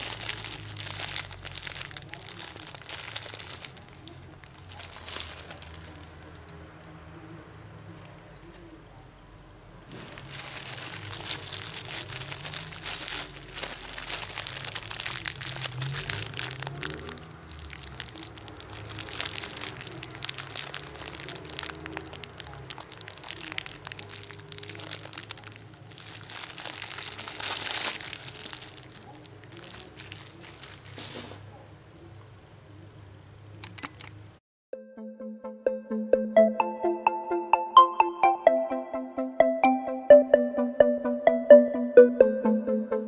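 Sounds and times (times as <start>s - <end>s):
plastic bag crinkling: 0.0s - 6.6s, 9.9s - 31.4s.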